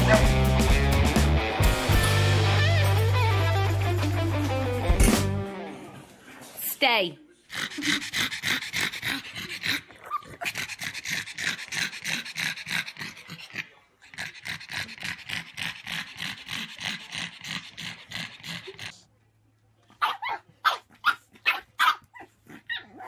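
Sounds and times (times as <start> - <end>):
dogs panting: 7.5 - 19.0.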